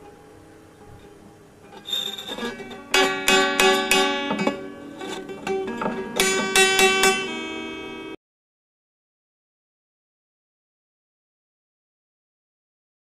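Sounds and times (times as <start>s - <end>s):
acoustic guitar strings plucked: 0.0s - 8.2s.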